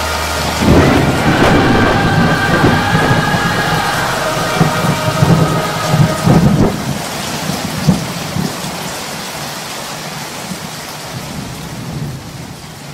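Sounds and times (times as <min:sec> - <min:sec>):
rolling thunder: 0:00.0 - 0:08.8
rain: 0:00.0 - 0:12.9.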